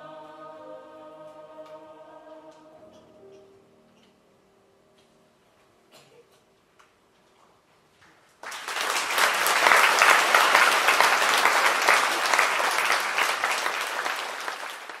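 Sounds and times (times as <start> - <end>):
audience applause: 8.4 - 15.0.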